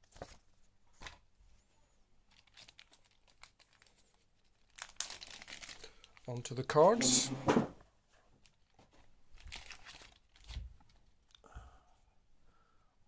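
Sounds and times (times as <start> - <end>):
plastic bag crinkling: 2.3 - 7.0, 8.4 - 11.4.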